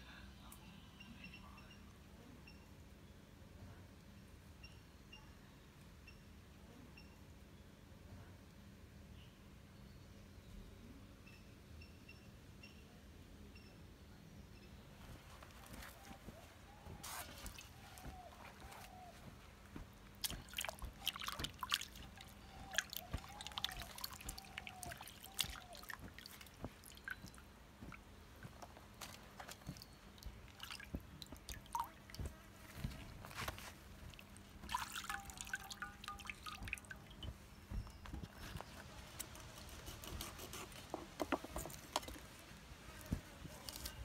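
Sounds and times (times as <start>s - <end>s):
water splashing in metal basin: 20.1s - 28.0s, 29.5s - 32.9s, 34.1s - 37.4s.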